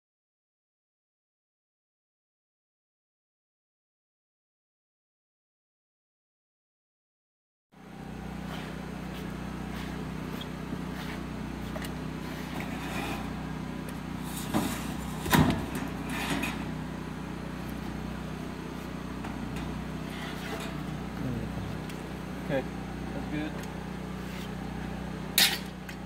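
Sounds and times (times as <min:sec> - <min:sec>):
low engine hum: 0:07.8 - 0:26.0.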